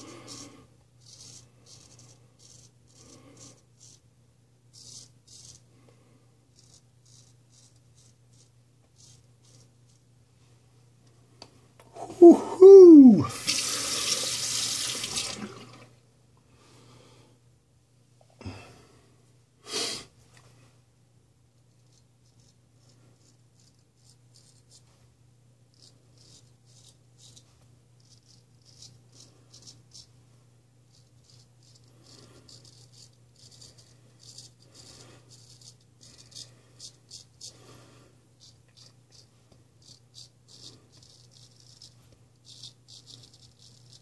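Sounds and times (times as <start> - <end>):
razor rasping on stubble: 0.0 - 4.0, 4.7 - 5.7, 6.5 - 10.0, 21.8 - 24.9, 25.7 - 30.1, 30.9 - 37.6, 38.4 - 44.0
sink tap running: 13.3 - 15.8.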